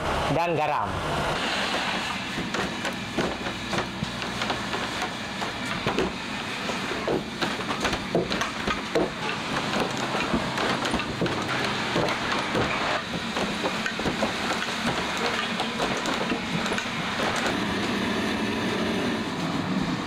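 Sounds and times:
machinery humming: 0.0s - 20.0s
clattering knocks: 1.7s - 17.7s.

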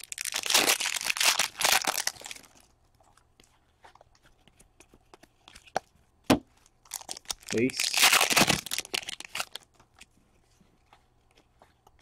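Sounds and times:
wrapper tearing and crinkling: 0.0s - 2.6s, 6.8s - 9.7s.

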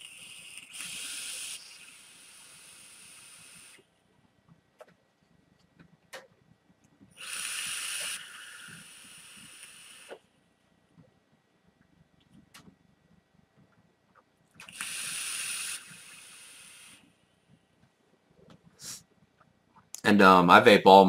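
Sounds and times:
vape hissing and sizzling: 0.0s - 3.8s, 7.2s - 10.3s, 14.6s - 17.1s.

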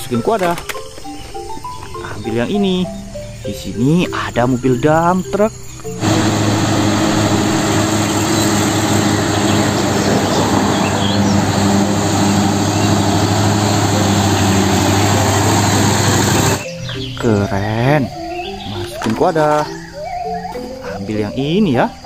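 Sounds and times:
diesel truck driving by: 5.9s - 17.1s.

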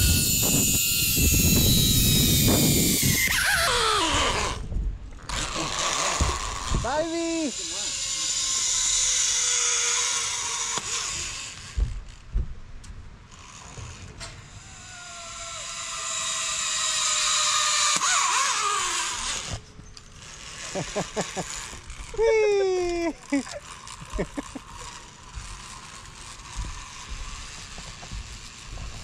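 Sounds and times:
pulleys whirring on steel cable: 0.0s - 12.3s, 13.3s - 29.0s.

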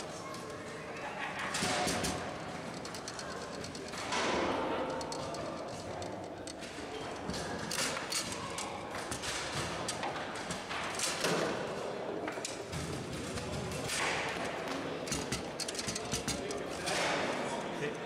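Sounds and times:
foosball ball knocks and clacks: 12.6s - 17.3s.

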